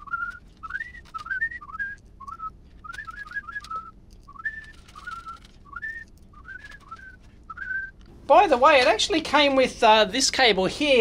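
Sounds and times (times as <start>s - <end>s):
plastic parts clicking: 0.0s - 7.3s
person whistling a tune: 0.0s - 7.9s.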